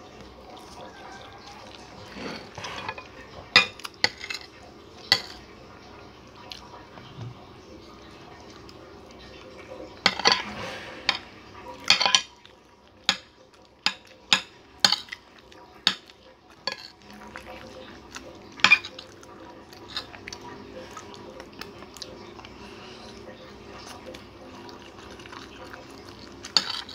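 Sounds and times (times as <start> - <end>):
cutlery clinking on a plate: 2.0 - 4.5, 5.1 - 5.4, 10.0 - 12.4, 13.0 - 15.2, 15.9 - 17.1, 18.6 - 19.0, 26.4 - 26.9.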